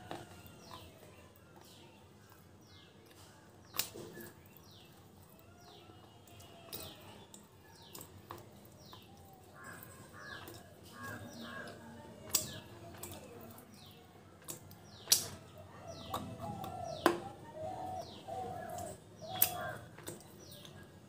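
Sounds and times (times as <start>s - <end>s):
sharp clicks of clay handled: 3.1s - 4.8s, 6.7s - 17.3s, 18.0s - 20.8s
bird chirping: 14.8s - 20.9s.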